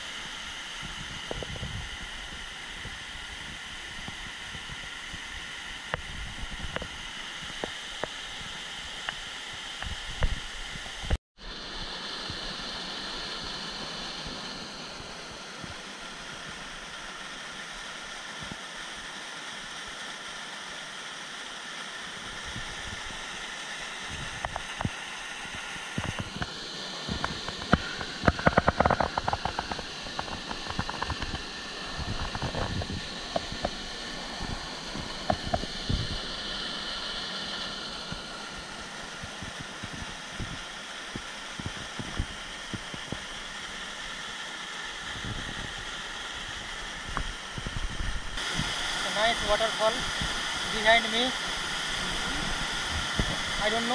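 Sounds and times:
waterfall rushing: 0:11.5 - 0:53.9.

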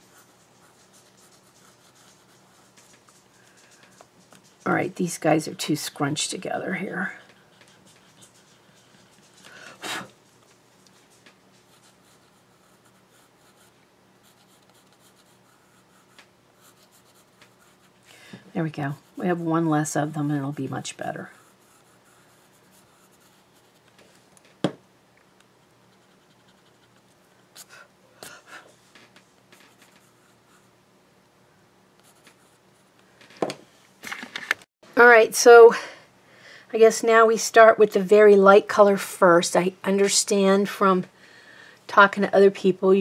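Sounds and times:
pencil scratching on paper: 0:00.0 - 0:18.0, 0:18.8 - 0:23.9, 0:25.9 - 0:27.0, 0:29.6 - 0:30.7, 0:32.0 - 0:32.9.

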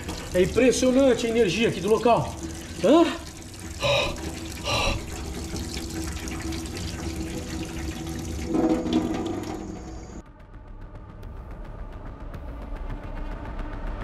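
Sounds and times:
tap water splashing into sink: 0:00.0 - 0:10.1
water dripping: 0:00.0 - 0:10.2.

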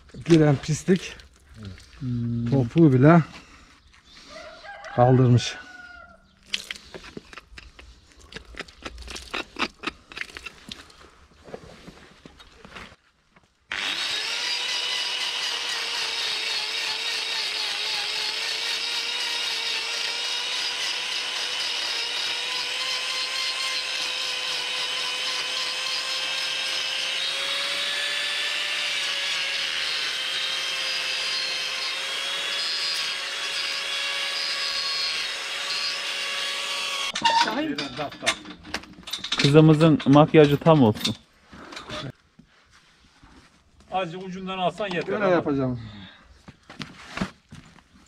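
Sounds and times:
angle grinder whining: 0:13.7 - 0:38.1.

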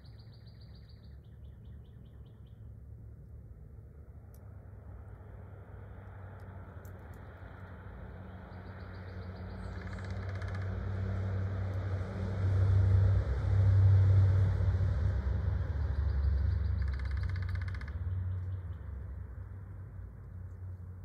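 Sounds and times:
car passing on road: 0:04.0 - 0:16.8.

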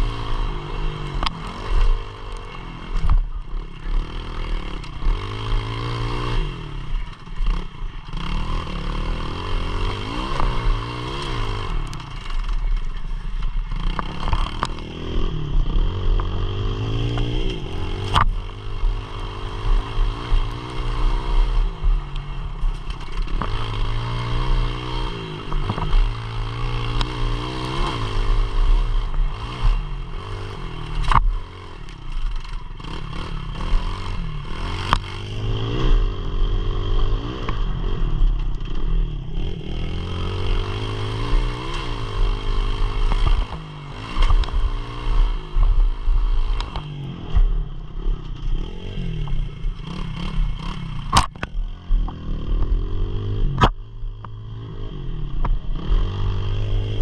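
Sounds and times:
pit bike engine revving: 0:00.0 - 0:57.0.

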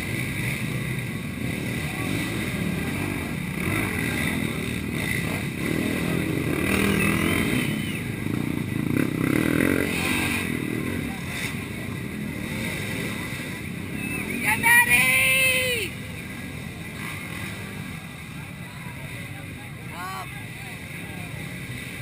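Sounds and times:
quad engine revving: 0:00.0 - 0:14.4
spectators' voices: 0:10.8 - 0:22.0.

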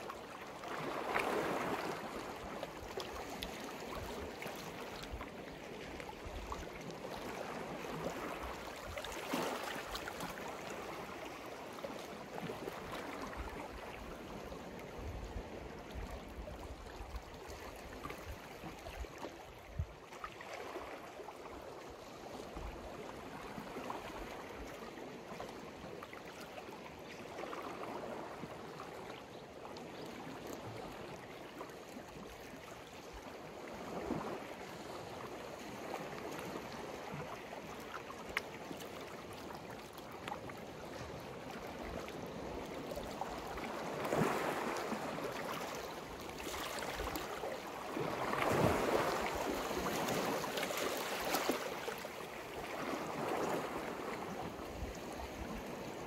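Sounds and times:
sea waves washing onto shore: 0:41.3 - 0:56.0.

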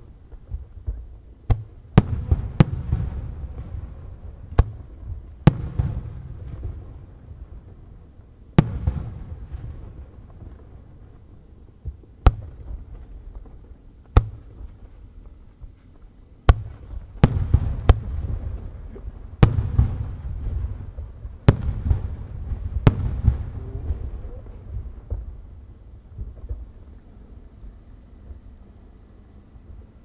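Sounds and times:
firework shells booming: 0:00.3 - 0:07.8, 0:08.5 - 0:11.0, 0:11.8 - 0:14.8, 0:16.4 - 0:25.5.

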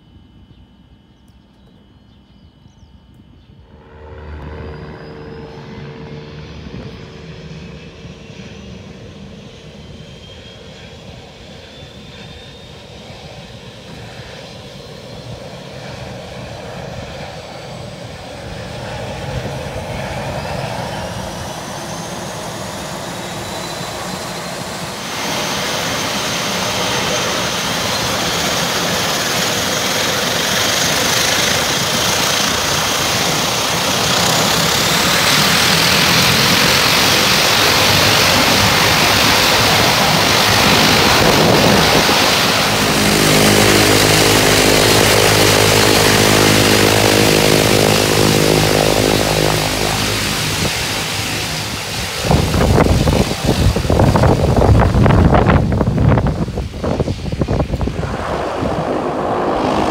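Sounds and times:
low tonal hum: 0:00.0 - 0:14.4, 0:56.5 - 0:59.9
engine and propeller rush: 0:00.0 - 0:59.9
turbine whine rising: 0:00.0 - 0:59.9.

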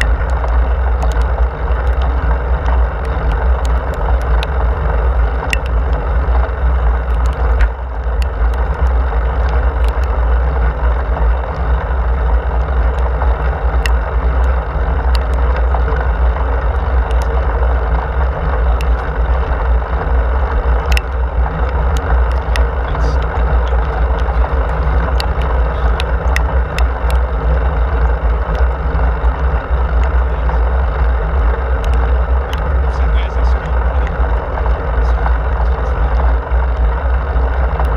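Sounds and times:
small clicks: 0:00.0 - 0:10.2, 0:12.8 - 0:16.1, 0:20.8 - 0:27.2
wind buffeting microphone: 0:00.0 - 0:37.9.

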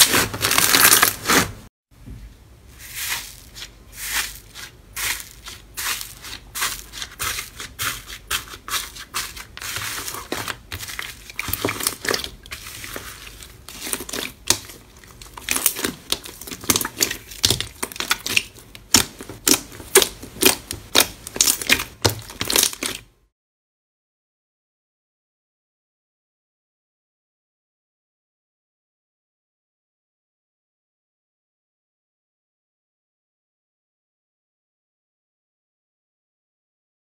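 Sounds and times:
crunchy slime crackling: 0:00.0 - 0:01.6, 0:02.9 - 0:23.0.

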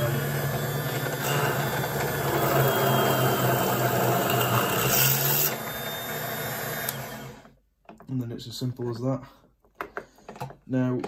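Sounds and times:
small electric drill drilling: 0:00.0 - 0:07.5.

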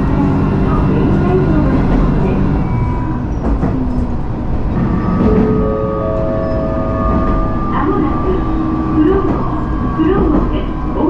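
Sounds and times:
railcar low rumble: 0:00.0 - 0:11.0.

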